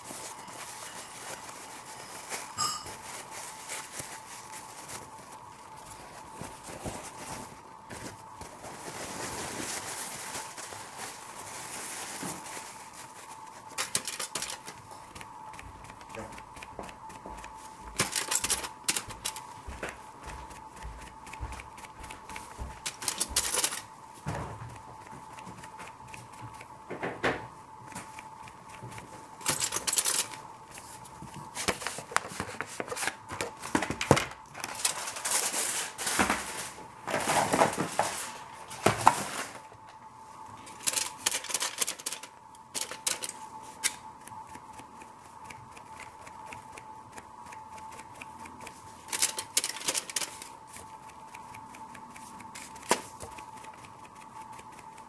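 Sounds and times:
cloth rustling: 0:00.0 - 0:14.5.

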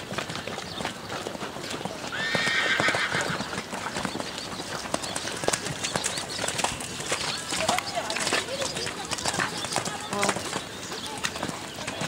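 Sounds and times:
hoofbeats on wet sand: 0:00.0 - 0:12.0
horse whinny: 0:02.1 - 0:03.6.

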